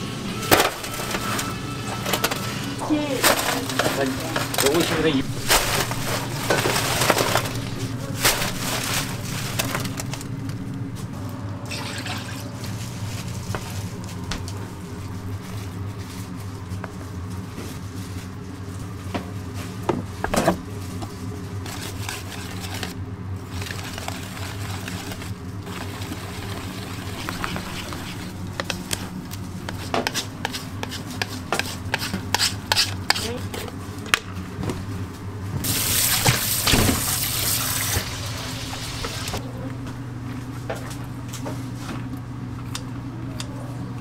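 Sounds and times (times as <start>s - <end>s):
steady machine hum: 0.0s - 44.0s
liquid pouring into bowl: 11.6s - 12.5s
wire whisk stirring in steel bowl: 21.6s - 33.6s.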